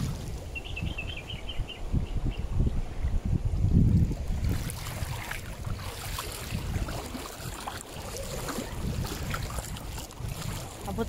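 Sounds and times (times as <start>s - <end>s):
water sloshing while wading: 0.0s - 0.6s, 3.9s - 11.0s
wind on microphone: 0.0s - 11.0s.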